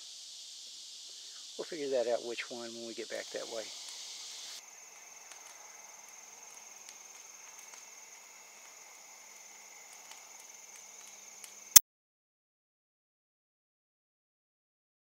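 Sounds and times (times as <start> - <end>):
crickets trilling: 0.0 - 11.8
campfire crackling: 4.6 - 11.8.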